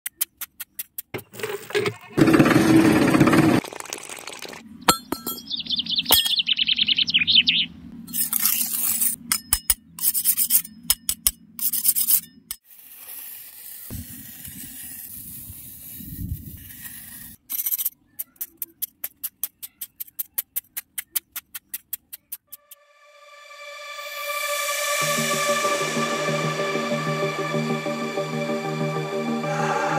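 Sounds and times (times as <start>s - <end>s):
putty knife scraping dry mud: 8.1s - 22.4s.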